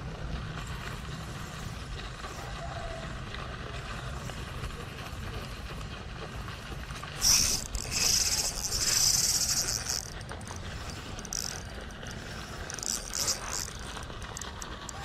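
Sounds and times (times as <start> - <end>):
fishing reel clicking: 6.9 - 15.0.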